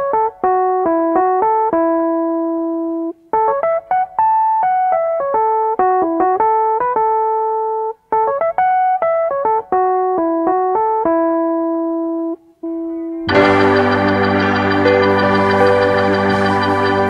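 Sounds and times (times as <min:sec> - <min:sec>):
piano melody: 0:00.0 - 0:17.0
sustained organ chord: 0:13.0 - 0:17.0.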